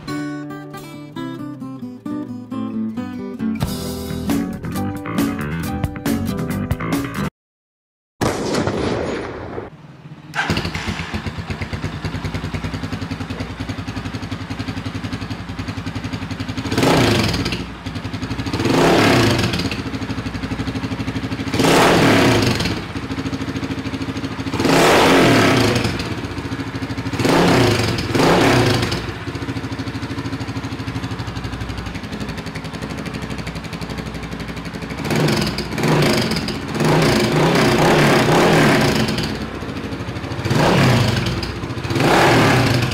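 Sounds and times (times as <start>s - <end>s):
motorcycle engine idling and revving: 9.7s - 42.9s.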